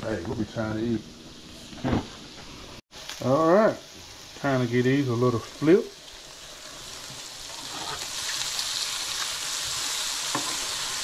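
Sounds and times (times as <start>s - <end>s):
fish sizzling in a frying pan: 2.9s - 11.0s.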